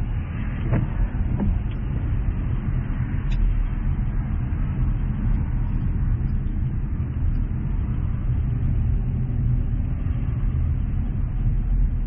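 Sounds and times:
car road and engine rumble: 0.0 - 12.0.

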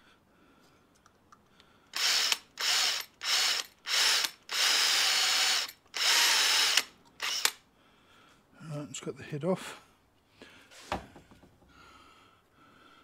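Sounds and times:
cordless drill whine: 2.0 - 7.6.

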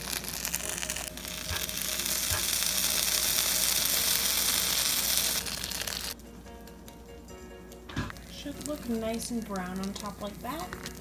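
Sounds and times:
waffle maker sizzling hiss: 0.0 - 6.2.

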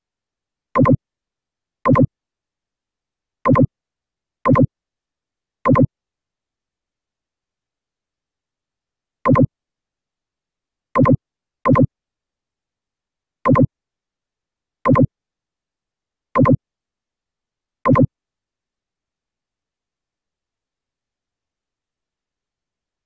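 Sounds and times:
double pop click effects: 0.8 - 1.0, 1.9 - 2.1, 3.5 - 3.7, 4.5 - 4.7, 5.7 - 5.9, 9.3 - 9.5, 11.0 - 11.9, 13.5 - 13.7, 14.9 - 15.1, 16.4 - 16.6, 17.9 - 18.1.

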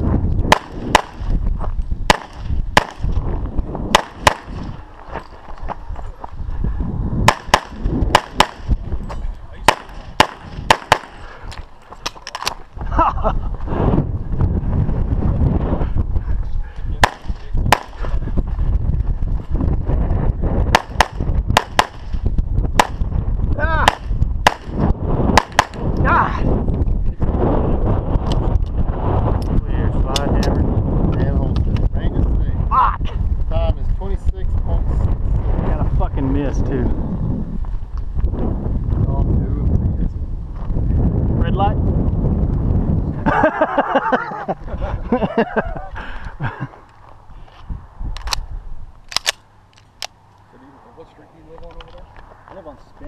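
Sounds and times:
steady low rumble: 0.0 - 53.0
pistol shots: 0.5 - 1.3, 2.1 - 3.1, 3.9 - 4.7, 7.3 - 8.7, 9.6 - 11.2, 17.0 - 18.0, 20.7 - 22.1, 22.8 - 23.0, 23.8 - 24.8, 25.4 - 25.8.

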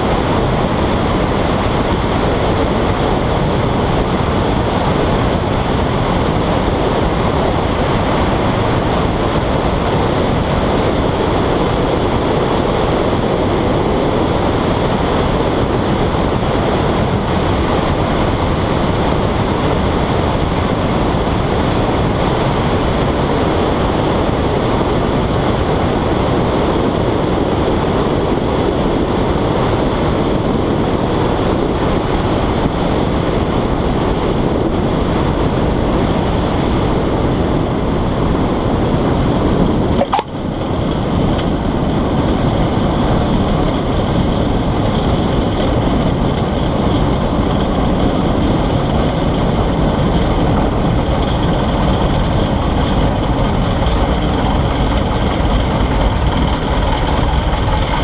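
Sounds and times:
heavy wind rush: 0.0 - 58.0
small airplane piston engine: 0.0 - 58.0
sharp click: 40.0 - 40.4.

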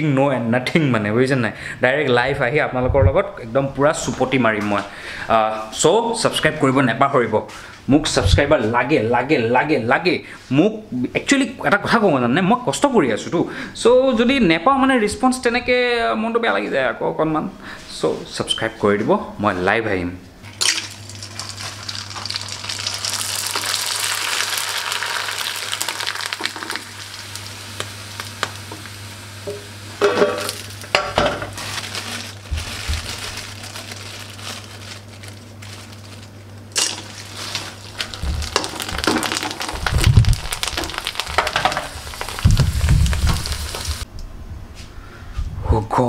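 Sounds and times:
food sizzling in hot oil: 20.5 - 31.4, 36.8 - 44.1
heavy bumps and thumps: 38.0 - 44.0.

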